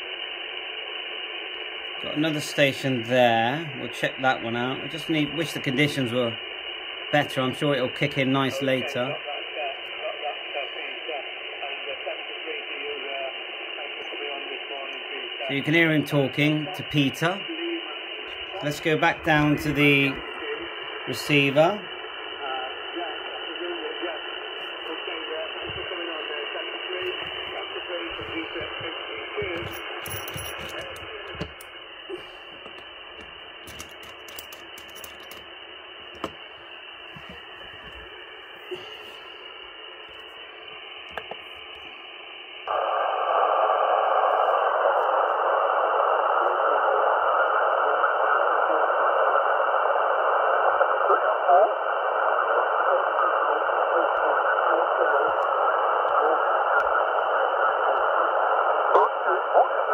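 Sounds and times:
radio static: 0:00.0 - 0:59.9
garbled radio voice: 0:02.0 - 0:06.4, 0:07.2 - 0:32.8, 0:51.0 - 0:51.8, 0:52.4 - 0:59.9.

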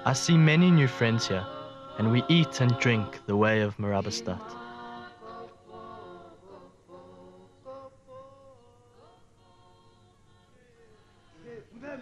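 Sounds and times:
a cappella singing: 0:00.0 - 0:12.0.

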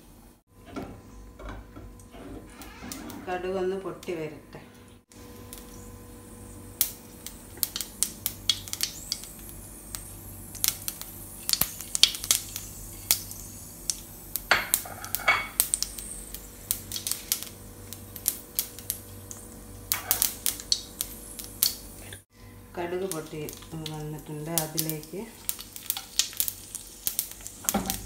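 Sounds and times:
steady low hum: 0:03.0 - 0:28.0
mustard seeds popping in hot oil: 0:05.2 - 0:22.2, 0:23.0 - 0:28.0.

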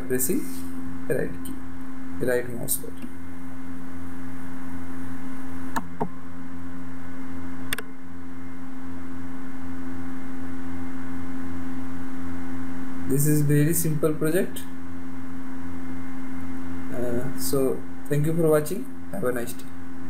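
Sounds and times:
steady electrical hum: 0:00.0 - 0:20.0.

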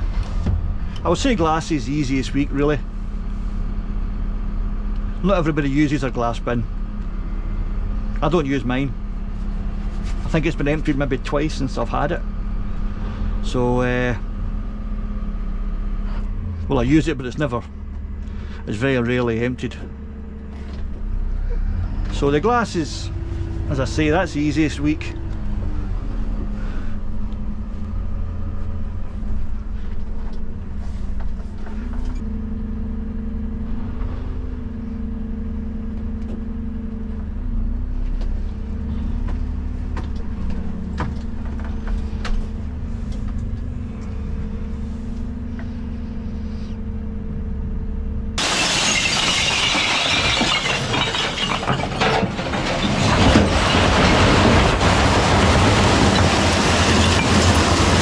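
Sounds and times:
truck engine hum: 0:00.0 - 0:58.0
glass bottles breaking: 0:48.4 - 0:58.0.

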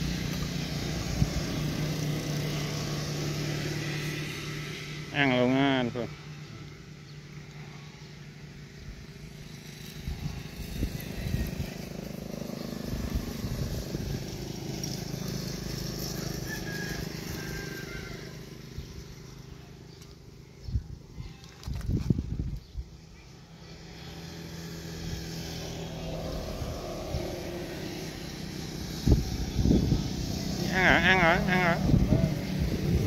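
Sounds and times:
engine passing by: 0:00.0 - 0:21.8, 0:22.9 - 0:33.0.

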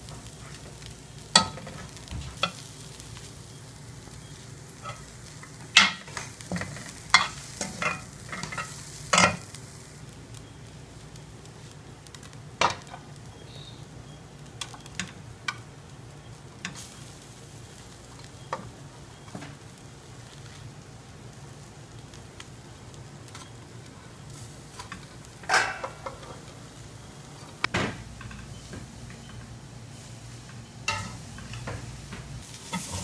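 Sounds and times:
light sizzle: 0:00.0 - 0:33.0
steady low hum: 0:00.0 - 0:33.0
metal spoon scraping a steel pan: 0:32.7 - 0:33.0.

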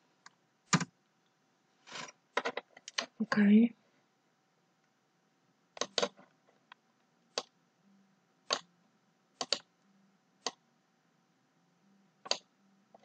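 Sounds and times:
computer mouse clicks: 0:02.4 - 0:03.2, 0:05.8 - 0:06.3, 0:08.5 - 0:08.7, 0:09.4 - 0:09.7, 0:12.2 - 0:13.0.

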